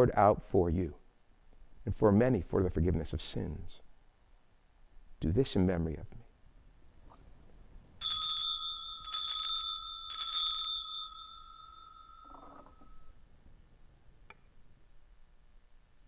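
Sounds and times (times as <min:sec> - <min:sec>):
altar bells ringing: 0:08.0 - 0:13.2.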